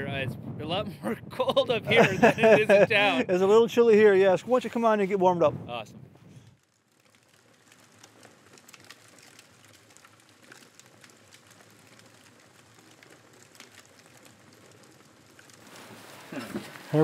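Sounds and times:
soft crackles and ticks: 6.3s - 17.0s.

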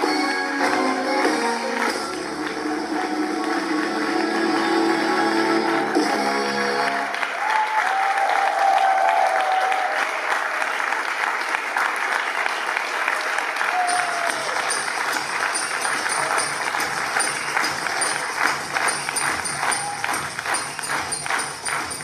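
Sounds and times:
music with jingling beat: 0.0s - 6.5s, 13.8s - 22.0s
audience applauding: 0.0s - 22.0s
audience cheering: 0.6s - 21.8s.

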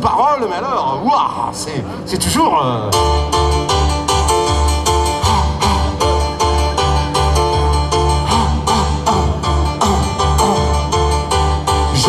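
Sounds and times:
sustained keyboard chords: 2.2s - 12.0s
pulsing keyboard bass line: 2.4s - 12.0s.

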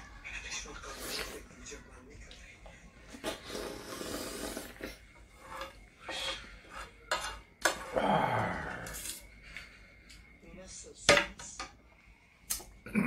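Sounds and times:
sipping: 3.1s - 5.0s
spoon scraping ceramic plate: 4.5s - 8.0s.

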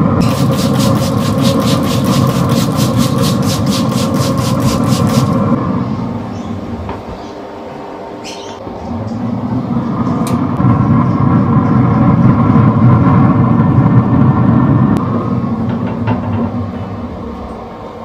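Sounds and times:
low rumble: 8.7s - 17.7s.

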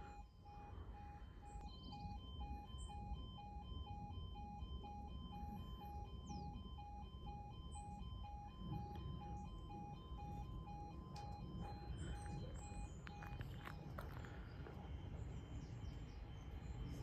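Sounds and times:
level crossing alarm beeping: 0.0s - 17.0s.

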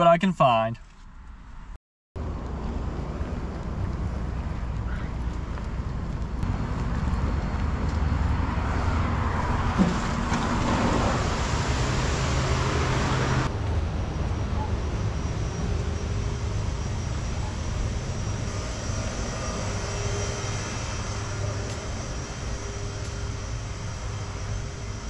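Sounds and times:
loud rushing noise: 6.5s - 25.0s.

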